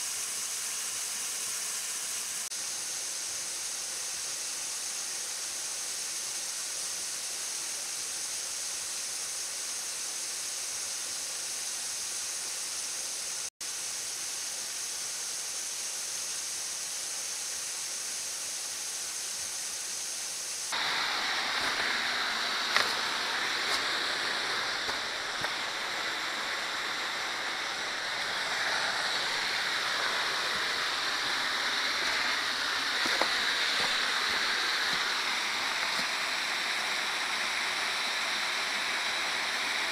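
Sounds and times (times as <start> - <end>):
water rushing over rock: 20.7 - 39.9.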